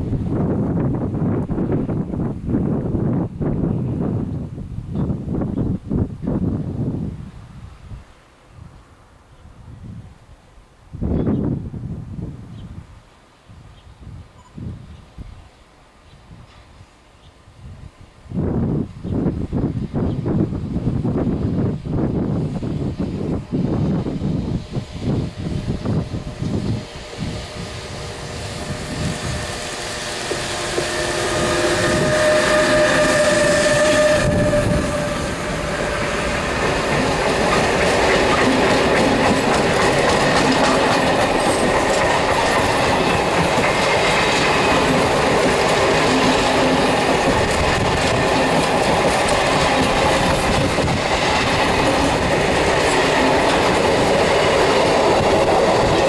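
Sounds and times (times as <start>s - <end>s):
electric locomotive passing: 17.6s - 56.0s
train wheels clattering on rails: 23.8s - 56.0s.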